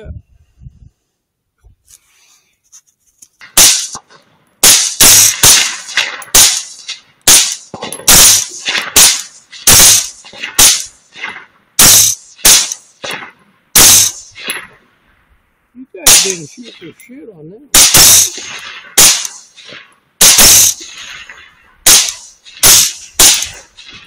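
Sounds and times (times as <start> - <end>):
rapid gunshots: 3.6 - 4.0, 4.6 - 14.6, 16.1 - 16.8, 17.7 - 24.0.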